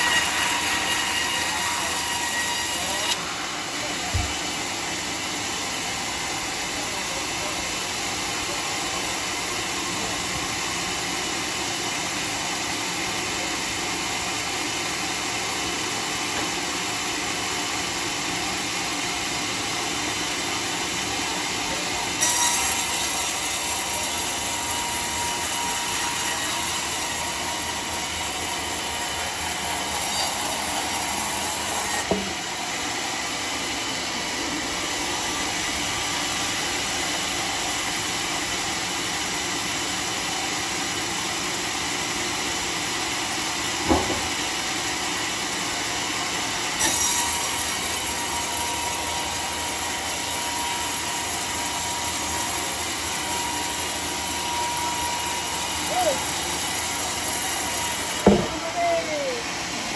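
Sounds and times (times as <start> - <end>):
sawmill blade cutting wood: 0.0 - 58.7
sharp knocks: 58.2 - 58.5.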